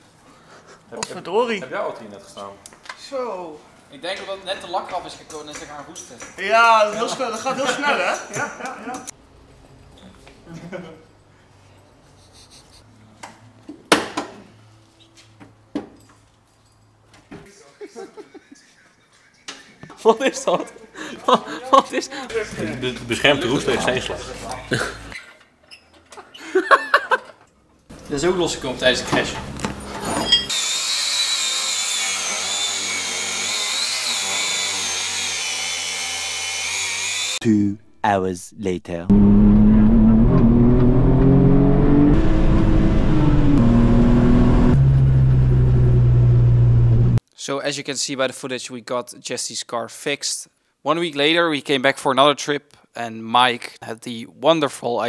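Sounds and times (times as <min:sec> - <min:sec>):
angle grinder whining on metal: 0:30.3 - 0:37.4.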